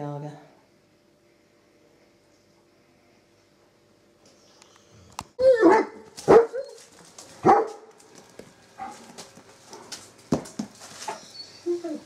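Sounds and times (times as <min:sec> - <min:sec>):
soft scuffling: 0:06.0 - 0:12.0.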